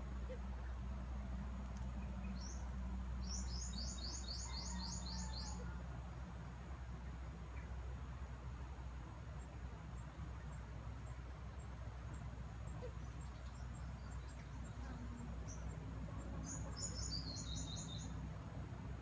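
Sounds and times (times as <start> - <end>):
steady low rumble: 0.0 - 4.4
bird chirping: 1.9 - 5.7, 12.8 - 18.2.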